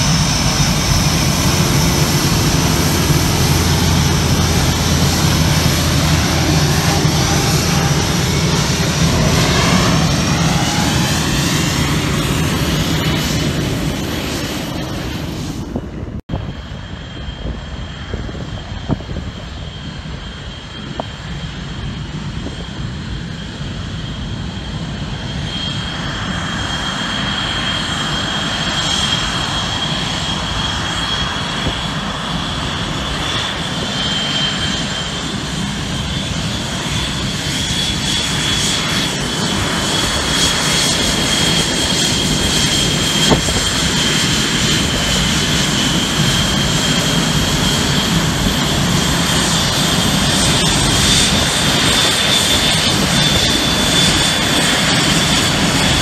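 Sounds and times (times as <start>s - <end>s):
high thin jet whine: 0.0s - 16.0s, 27.4s - 56.0s
jet engines rumbling: 0.0s - 56.0s.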